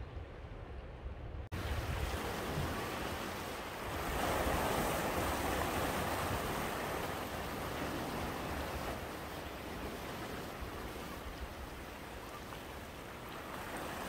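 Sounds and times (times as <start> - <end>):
waves washing among rocks: 1.6 - 12.2.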